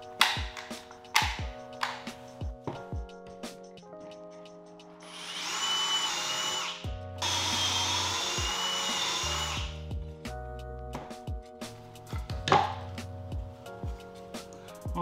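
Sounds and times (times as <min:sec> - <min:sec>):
cordless drill whining: 0:05.0 - 0:09.8.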